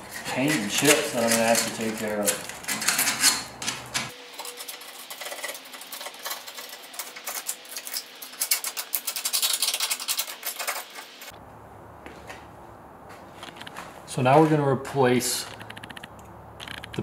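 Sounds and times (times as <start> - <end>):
screwdriver scraping rusty metal: 0.0 - 11.4.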